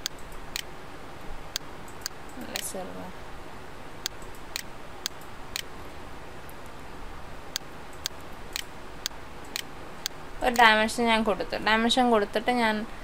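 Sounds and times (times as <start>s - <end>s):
sharp ticking clicks: 0.0s - 0.7s, 4.0s - 5.7s, 7.5s - 10.8s
faint room noise: 0.0s - 13.0s.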